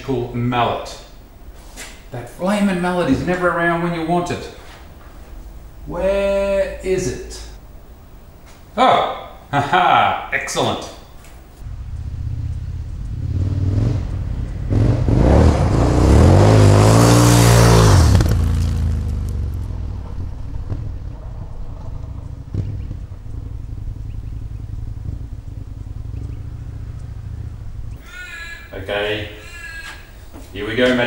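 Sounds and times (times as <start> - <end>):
motorcycle speeding past: 11.6 - 28.7.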